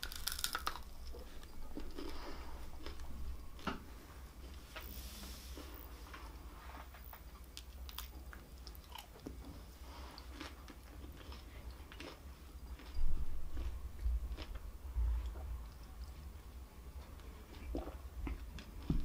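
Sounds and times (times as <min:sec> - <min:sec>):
chewing crispy fried food: 0:00.0 - 0:03.1, 0:07.4 - 0:16.3.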